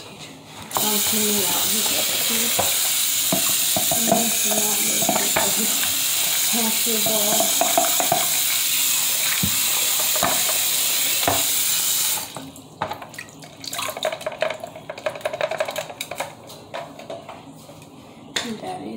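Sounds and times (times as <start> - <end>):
tap water running into sink: 0.7 - 16.2.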